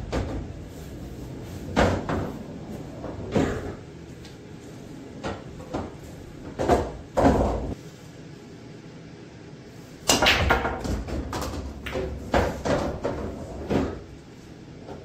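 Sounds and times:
billiard balls clacking: 0.0s - 4.5s, 5.1s - 7.8s, 10.0s - 14.2s.

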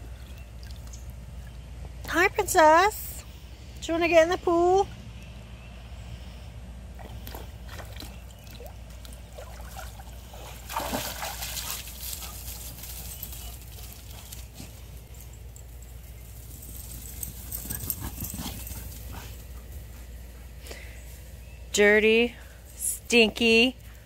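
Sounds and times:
pool water sloshing and trickling: 7.0s - 12.2s.

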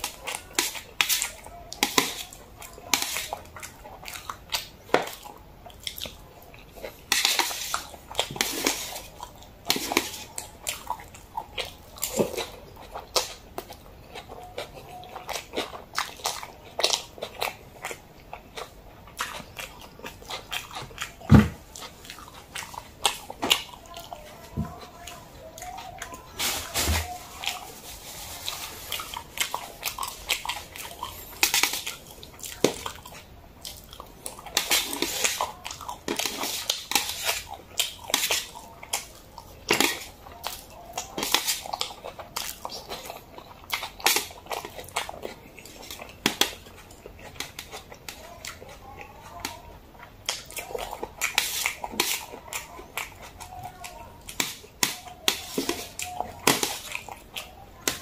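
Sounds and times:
noodles slurped and chewed: 0.0s - 58.0s
wet clicks and smacks: 29.4s - 48.6s.

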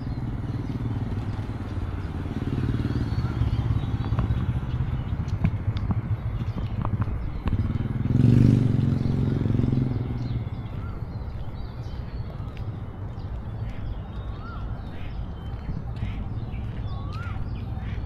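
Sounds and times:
vehicle engine passing: 0.0s - 11.1s
low traffic rumble: 0.0s - 18.0s.

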